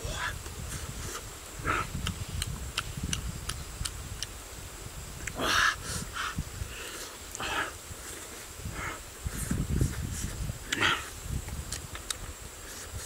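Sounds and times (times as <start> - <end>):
small mouth clicks: 1.9 - 4.4, 10.7 - 10.9.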